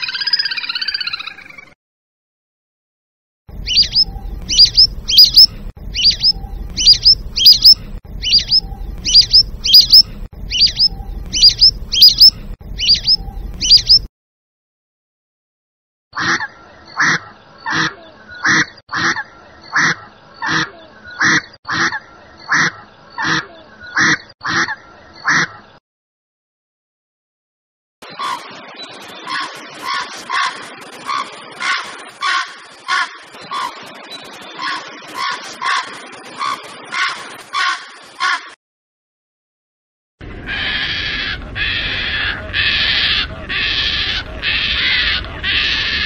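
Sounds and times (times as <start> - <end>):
ducks whistling: 3.6 - 14.1, 40.4 - 46.0
duck quacking: 3.8 - 6.2, 6.8 - 14.0, 16.2 - 25.7, 40.4 - 46.0.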